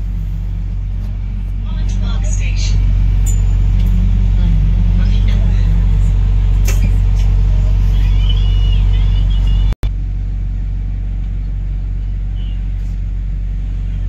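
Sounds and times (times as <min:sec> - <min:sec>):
high wavering squeal: 0:00.0 - 0:09.7
bus engine rumble: 0:00.0 - 0:14.0
road noise: 0:00.0 - 0:14.0.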